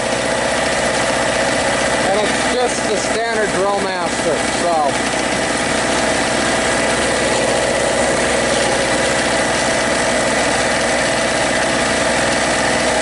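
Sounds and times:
portable generator running: 0.0 - 13.0.

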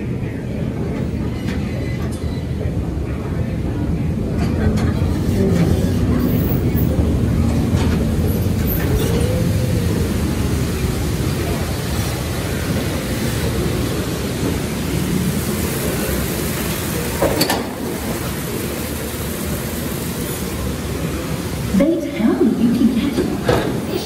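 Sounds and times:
train cars rumbling in tunnel: 0.0 - 24.0.

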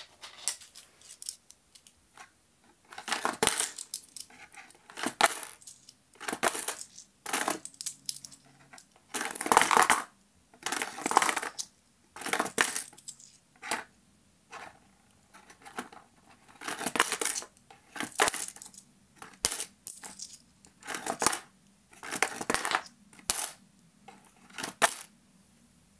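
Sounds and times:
coins clinking into cardboard machine: 3.0 - 4.3, 5.0 - 8.4, 9.1 - 10.1, 10.7 - 13.4, 16.6 - 23.6, 24.6 - 25.1.

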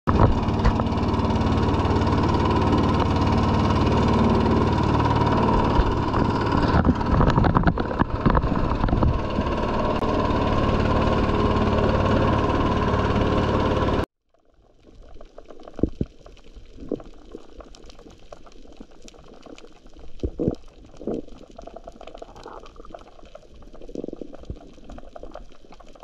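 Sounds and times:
motorboat engine running: 0.1 - 14.1.

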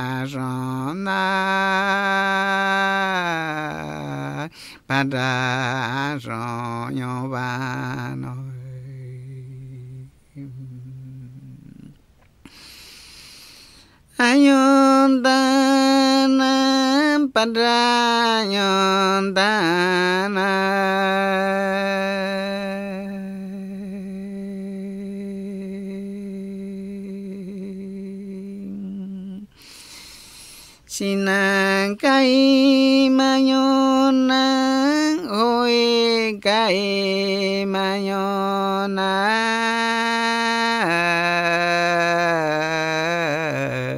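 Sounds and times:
man singing long held notes: 0.0 - 11.9, 30.9 - 43.9.

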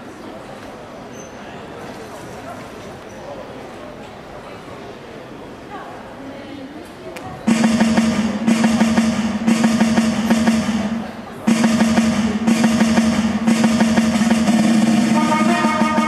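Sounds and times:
snare drum roll: 7.5 - 16.0.

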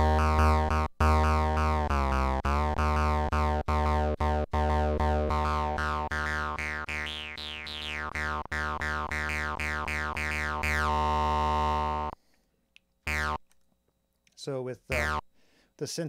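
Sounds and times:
synth bass note with filter sweep: 0.0 - 12.1.

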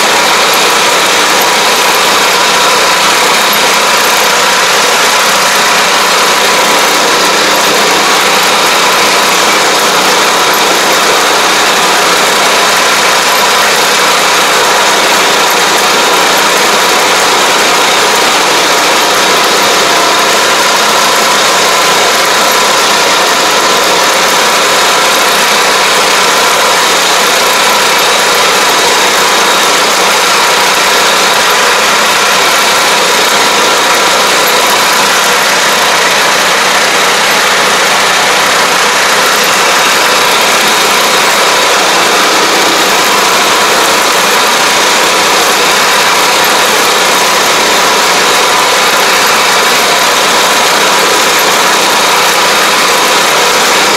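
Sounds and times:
sprayer engine running: 0.0 - 53.9.

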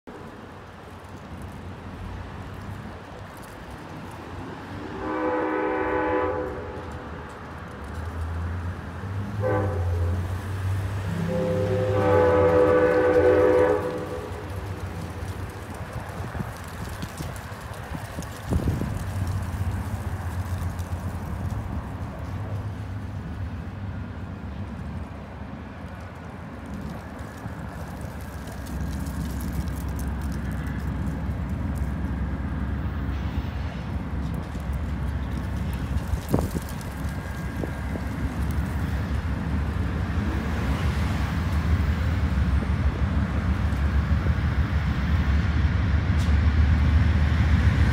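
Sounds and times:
locomotive rumble: 0.1 - 47.9
train air horn blasts: 4.9 - 7.0, 9.4 - 10.3, 11.1 - 14.8.

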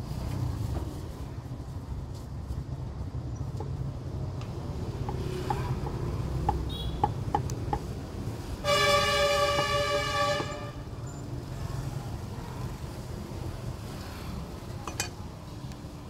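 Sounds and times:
traffic rumble: 0.0 - 16.0
vehicle horn honk: 8.6 - 10.8.

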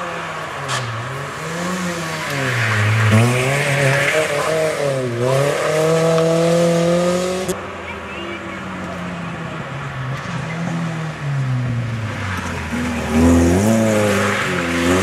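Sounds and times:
rally car engine revving: 0.0 - 7.6, 8.6 - 15.0.

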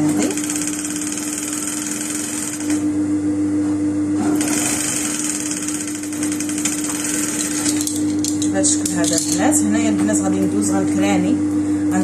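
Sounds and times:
sewing machine stitching: 0.0 - 2.8, 4.3 - 7.9
steady hum: 0.0 - 12.0.

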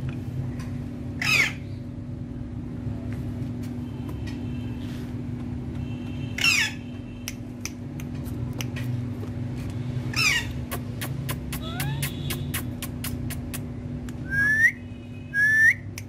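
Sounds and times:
parakeet squawk: 1.2 - 1.8, 6.3 - 7.0, 10.1 - 10.9, 11.6 - 12.7.

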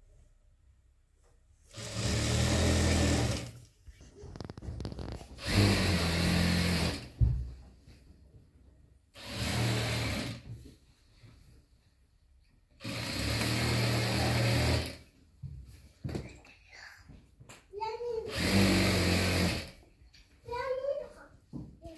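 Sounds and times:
sewing machine stitching: 1.7 - 3.6, 4.8 - 7.2, 9.2 - 10.5, 12.8 - 15.0, 18.2 - 19.8.

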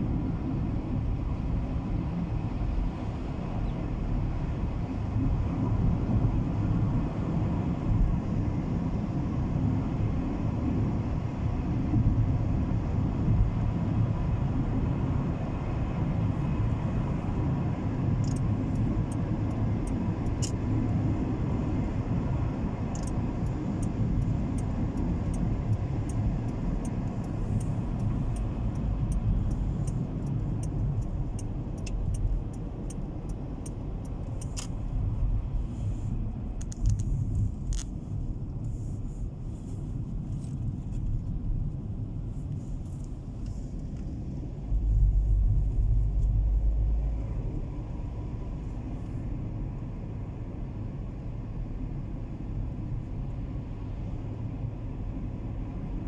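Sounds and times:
car driving rumble from inside: 0.0 - 56.0
light ticking clicks: 18.2 - 20.6, 22.9 - 35.2.

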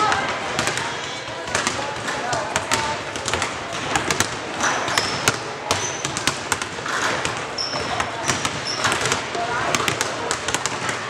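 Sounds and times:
basketballs bouncing on hardwood: 0.0 - 11.0
sneaker squeaks: 4.6 - 10.0.

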